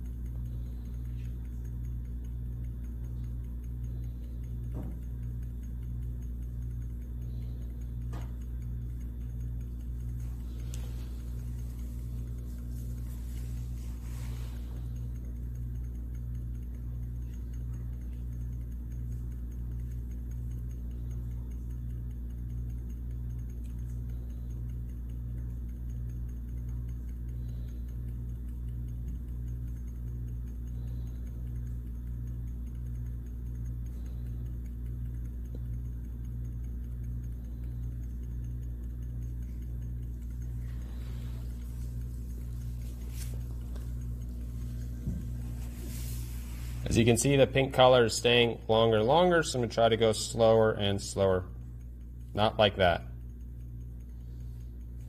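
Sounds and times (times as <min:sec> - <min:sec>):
pulsing machine hum: 0:00.0 - 0:55.0.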